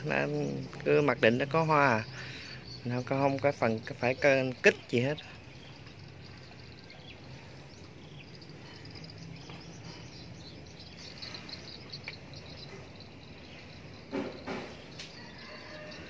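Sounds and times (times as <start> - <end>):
faint bird chirping: 0.0 - 16.0
knocks: 14.1 - 14.9.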